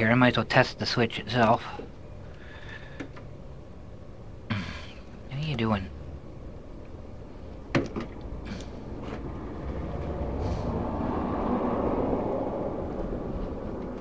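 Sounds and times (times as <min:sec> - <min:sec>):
passing vehicle rushing: 0:08.2 - 0:14.0.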